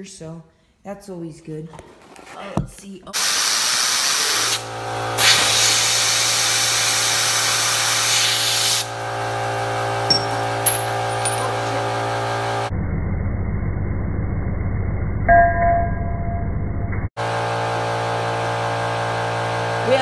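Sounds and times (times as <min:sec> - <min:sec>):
compressed air hissing: 0:03.2 - 0:08.9.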